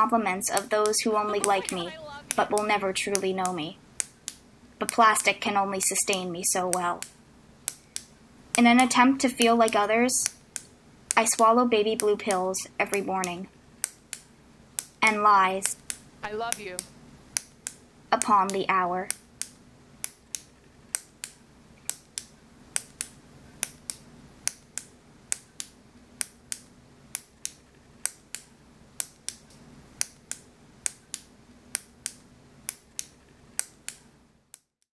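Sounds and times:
ballpoint pen clicking: 17.4s - 34.7s.

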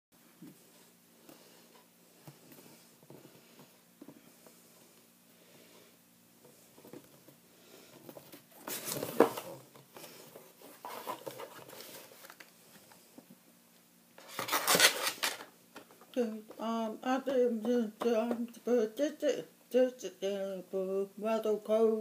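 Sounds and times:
cardboard box rustling and scraping: 8.1s - 12.4s, 14.2s - 15.4s.

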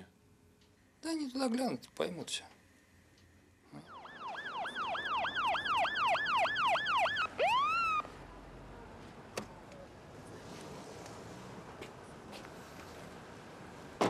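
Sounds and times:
police car siren: 3.7s - 8.1s.

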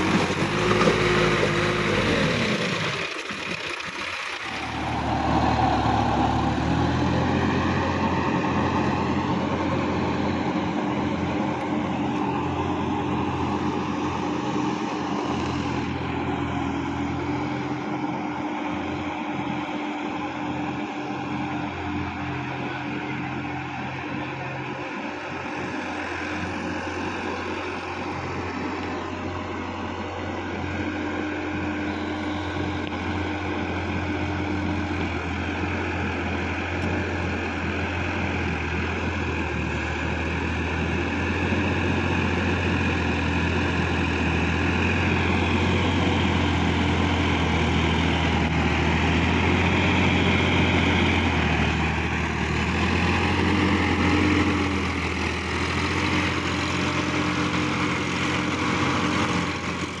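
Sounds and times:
tractor diesel engine running: 0.0s - 60.0s.

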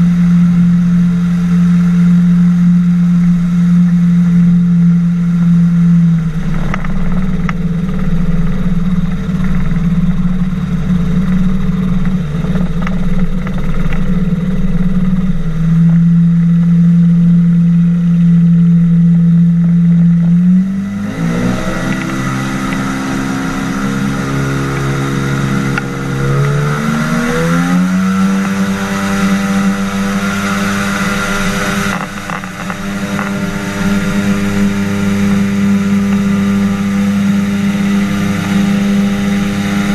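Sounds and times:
propeller engine running: 0.0s - 39.9s.

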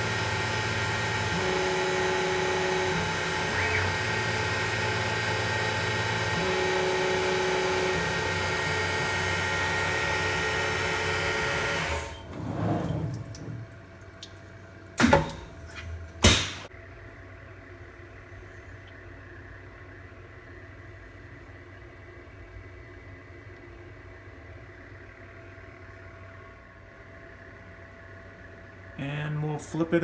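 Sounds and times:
milling machine spindle whine: 0.0s - 13.6s
faint hum: 12.0s - 30.0s.

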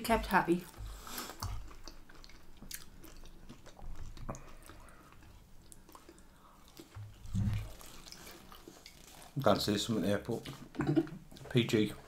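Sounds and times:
person biting and chewing chip: 5.7s - 9.4s.

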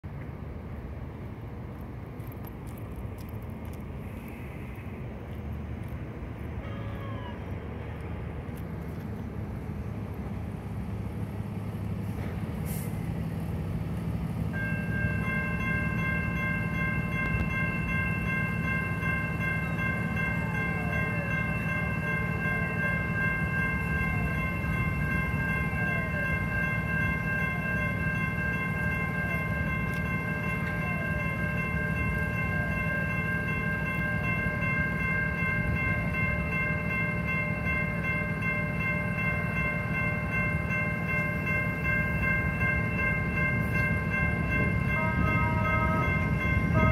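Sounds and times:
steady low rumble: 0.0s - 12.4s
electronic crossing bell ringing: 14.5s - 46.9s.

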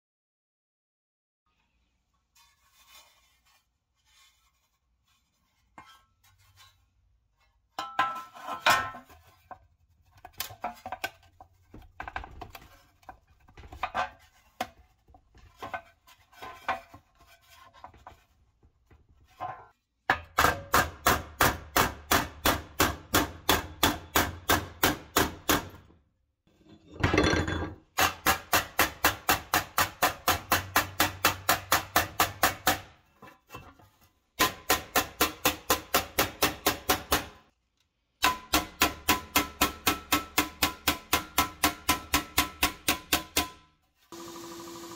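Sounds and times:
metal clatter: 26.6s - 27.9s.

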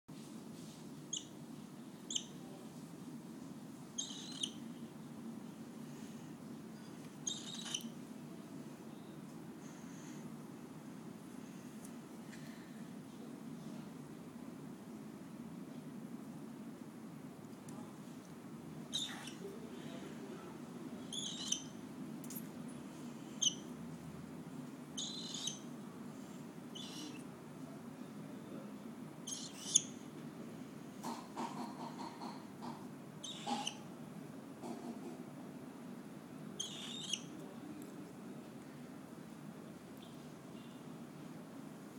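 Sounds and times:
cockatiel chirping: 1.1s - 1.4s, 2.1s - 2.4s, 4.0s - 4.6s, 7.2s - 7.9s, 18.9s - 19.5s, 21.1s - 21.8s, 23.4s - 23.7s, 25.0s - 25.7s, 26.7s - 27.2s, 29.3s - 30.0s, 33.2s - 33.8s, 36.6s - 37.3s.

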